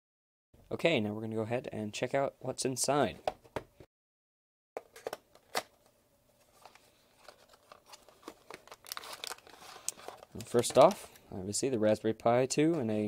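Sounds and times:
card scraping and rustling: 6.4 - 11.2.

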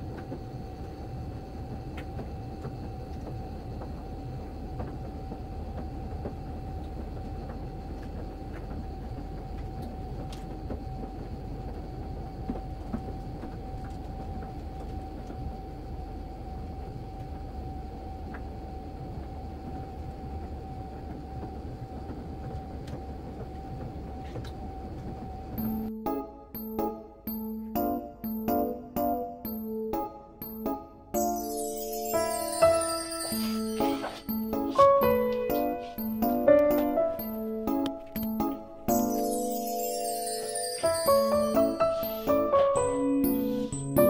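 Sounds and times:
washer and dryer rumbling: 20.4 - 44.0.

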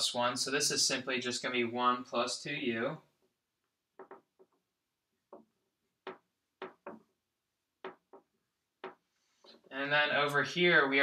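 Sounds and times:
marker tapping on whiteboard: 3.9 - 4.6, 5.3 - 7.2, 7.8 - 9.6.

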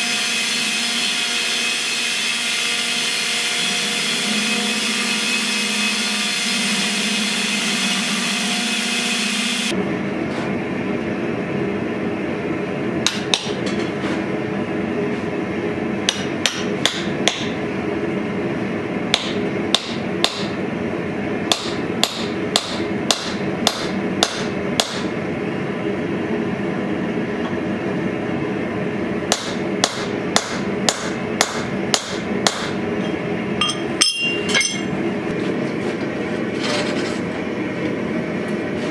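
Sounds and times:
steady background hum: 0.0 - 38.9
hammer blows on anvil: 33.6 - 34.9.

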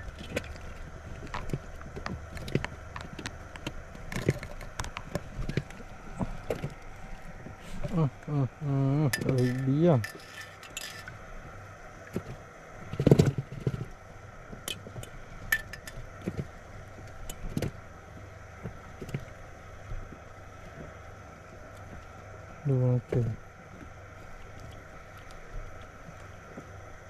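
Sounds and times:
fishing gear clicking and clinking: 9.1 - 11.2, 14.7 - 16.0.

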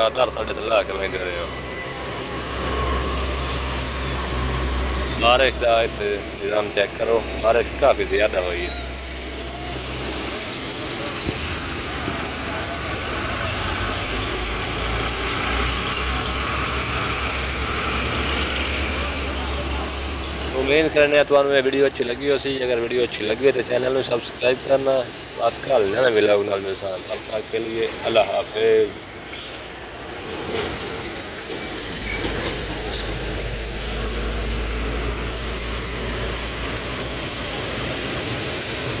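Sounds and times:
heavy truck passing: 0.0 - 39.0
traffic on a wet road: 0.0 - 39.0.

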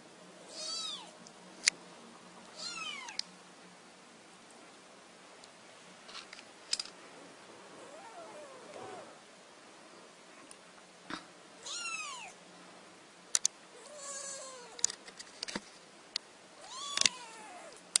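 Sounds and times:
kitten meowing: 0.5 - 1.1, 2.6 - 3.2, 11.6 - 12.4, 16.6 - 17.8.

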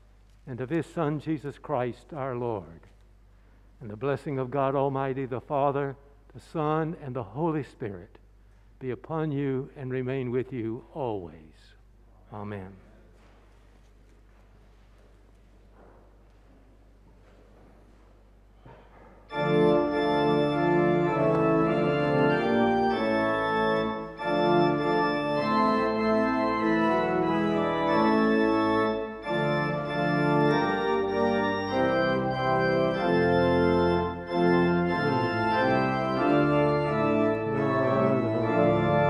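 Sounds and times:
church organ chords: 19.3 - 39.0.

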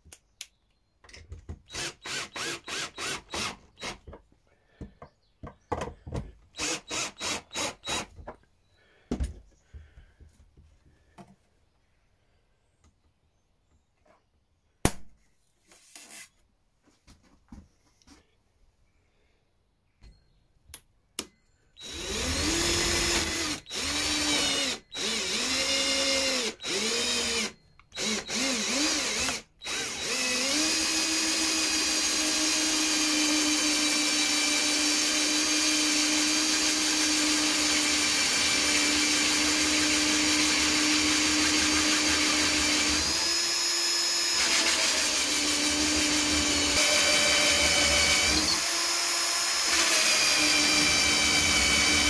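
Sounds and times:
drill clicks: 1.6 - 4.1, 6.6 - 8.2, 21.2 - 52.0
cordless drill cutting panel: 1.7 - 4.1, 6.6 - 8.1, 21.8 - 52.0.

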